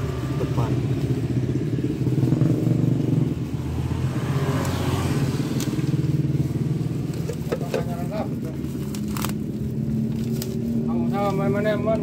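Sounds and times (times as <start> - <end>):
plastic panels and paper handled: 7.1 - 10.7.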